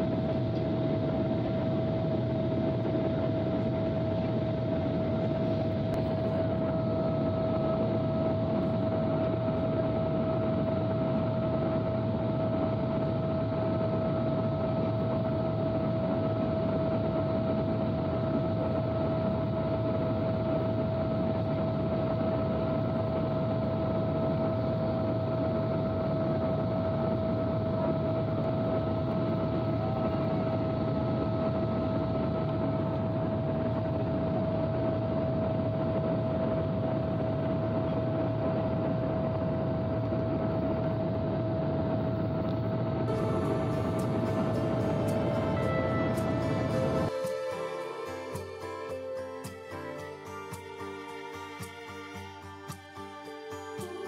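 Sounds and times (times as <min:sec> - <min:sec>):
airplane cabin engine rush: 0:00.0 - 0:53.0
high-pitched hum: 0:00.0 - 0:54.0.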